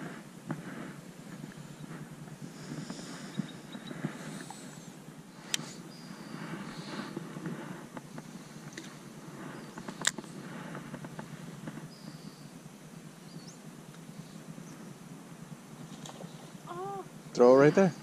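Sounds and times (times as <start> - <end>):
low steady background rumble: 0.0 - 18.0
faint ticks: 13.9 - 14.1.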